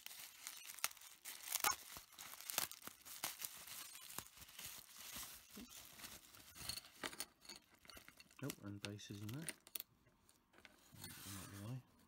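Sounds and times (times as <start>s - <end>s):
bubble wrap crinkling and crackling: 0.0s - 7.1s, 7.8s - 9.9s.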